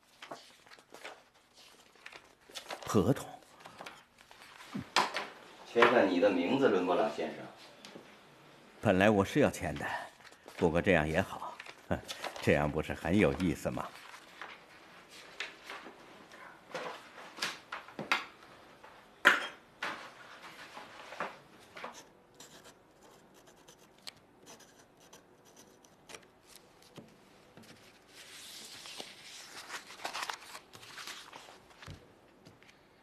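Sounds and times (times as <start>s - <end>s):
paper rustling: 0.0s - 4.8s, 11.4s - 16.0s, 25.5s - 32.9s
pen scratching on paper: 21.9s - 26.2s.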